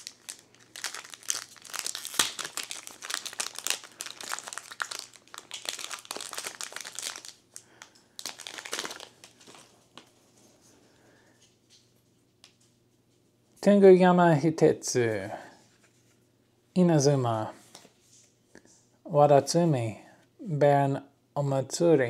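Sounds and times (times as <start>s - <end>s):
foil wrapper crinkling and tearing: 0.0s - 10.1s
faint rustling of cards: 0.0s - 13.6s, 15.2s - 16.4s, 17.4s - 19.0s.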